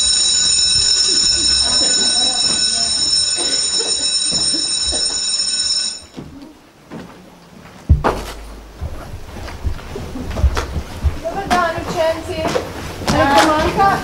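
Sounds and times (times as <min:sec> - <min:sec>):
electric school bell ringing: 0:00.0 - 0:06.2
shuffling: 0:06.0 - 0:14.0
loud thud: 0:07.9 - 0:10.8.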